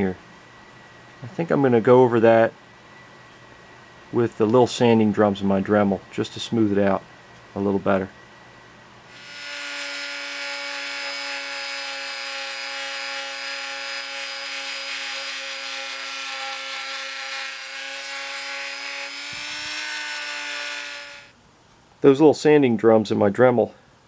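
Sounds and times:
rotary tool sanding steel: 9.1s - 21.3s.

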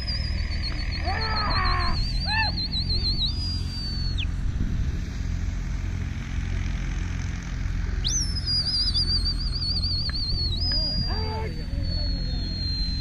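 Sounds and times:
shrill warbling whistle: 0.0s - 4.3s, 8.0s - 13.0s
low rumble: 0.0s - 13.0s.

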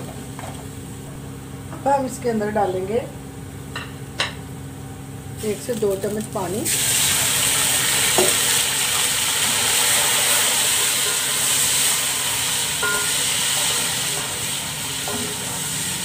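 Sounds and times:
hot oil sizzling: 5.4s - 16.0s.

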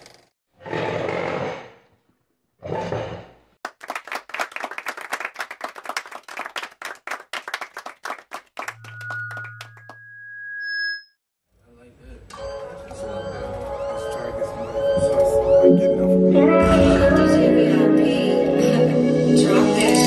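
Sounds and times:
high beeping tones: 8.7s - 11.2s.

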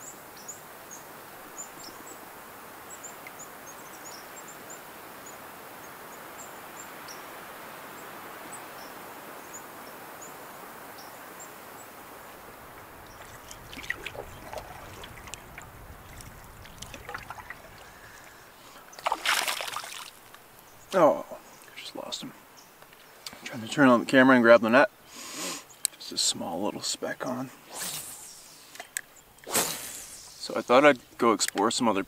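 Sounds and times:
hiss of moving air or water: 0.0s - 22.4s, 25.0s - 25.8s, 27.4s - 31.2s
water splashes: 12.0s - 21.0s.

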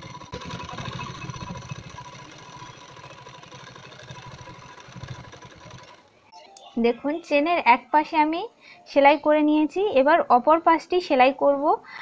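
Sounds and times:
sewing machine stitching: 0.0s - 6.2s.

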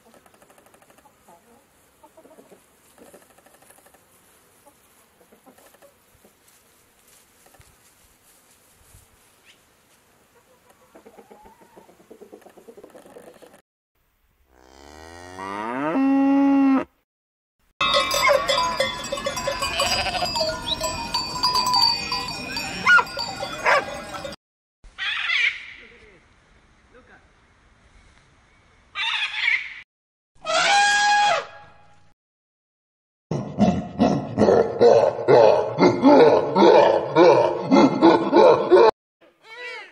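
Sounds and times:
faint chicken sounds: 0.0s - 6.6s, 10.2s - 13.6s
cow mooing: 14.5s - 17.0s, 19.6s - 20.6s
many bells ringing: 17.8s - 24.4s
sheep bleating: 19.5s - 20.5s.

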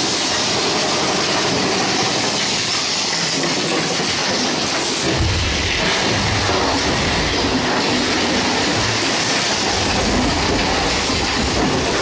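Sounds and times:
roller coaster cars clattering: 0.0s - 12.0s
deep rumble: 5.1s - 8.9s.

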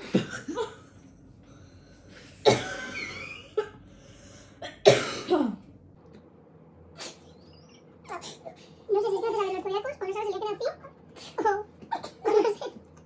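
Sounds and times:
person coughing: 2.4s - 3.2s, 4.6s - 5.6s.

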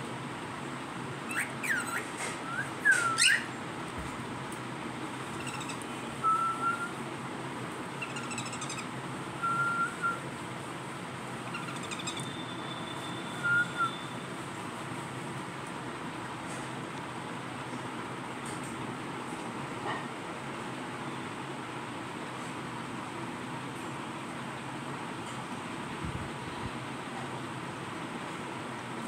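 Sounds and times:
steady background noise: 0.0s - 29.0s
cockatiels whistling: 1.3s - 3.5s, 5.4s - 7.0s, 8.0s - 8.8s, 9.4s - 10.2s, 11.5s - 14.2s
raspy chirps: 5.3s - 7.0s, 7.9s - 10.2s, 11.4s - 14.2s.

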